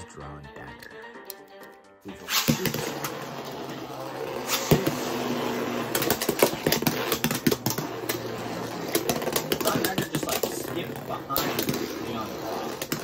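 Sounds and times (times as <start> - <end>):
spinning tops launch noise: 2.2 - 13.0
spinning tops whirring: 2.2 - 13.0
plastic tops clacking: 5.8 - 10.7.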